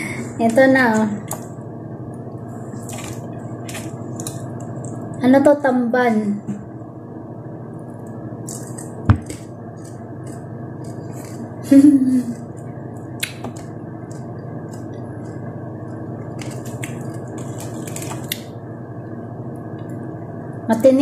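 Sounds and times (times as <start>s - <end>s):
steady low hum: 0.0s - 21.0s
person chewing crisp food: 12.4s - 18.4s.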